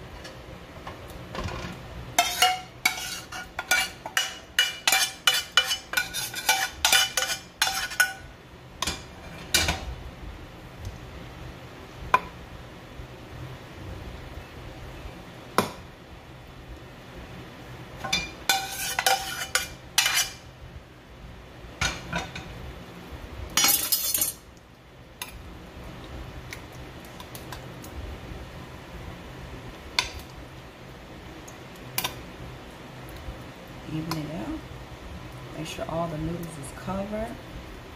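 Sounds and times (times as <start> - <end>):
spoon scraping metal pot: 1.6 - 8.2, 18.4 - 20.4.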